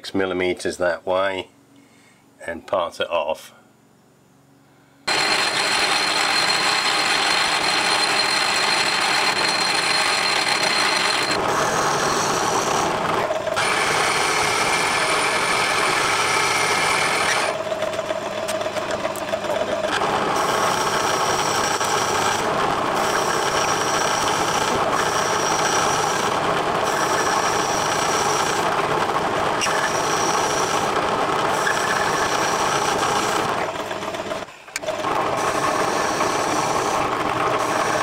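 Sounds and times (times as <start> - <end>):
high-pitched whine: 5.1 - 28.6
metal lathe cutting steel: 5.1 - 38.0.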